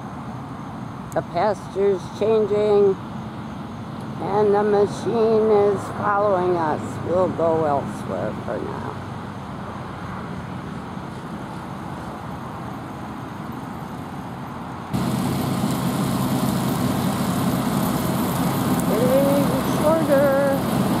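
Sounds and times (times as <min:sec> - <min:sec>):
tractor engine running: 0:11.0 - 0:21.0.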